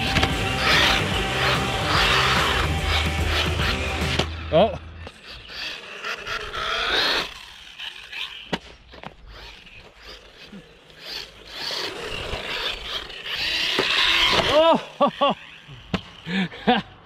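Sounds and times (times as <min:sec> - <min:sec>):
electric motor whining: 0:00.0 - 0:16.3
rasping running noise: 0:00.0 - 0:16.8.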